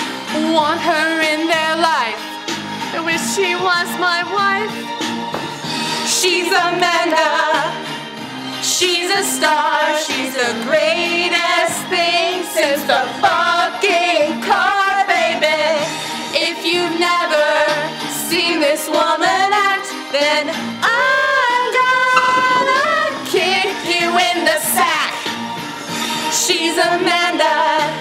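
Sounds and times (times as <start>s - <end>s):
woman singing into microphone: 16.4s - 25.2s
backing track with bass line: 22.2s - 23.4s.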